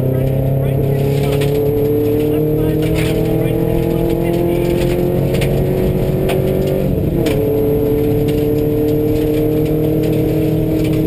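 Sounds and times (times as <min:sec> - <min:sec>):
rally car engine under throttle: 0:00.0 - 0:11.0.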